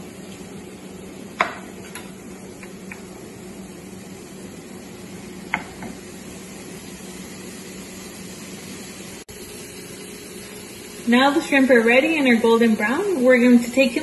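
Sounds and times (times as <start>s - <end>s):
shrimp sizzling in oil: 0.0s - 14.0s.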